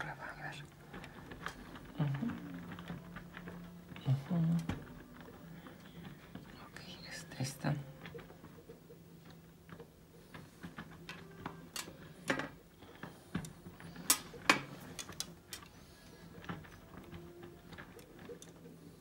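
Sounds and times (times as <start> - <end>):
small plastic parts clicking: 8.0 - 19.0.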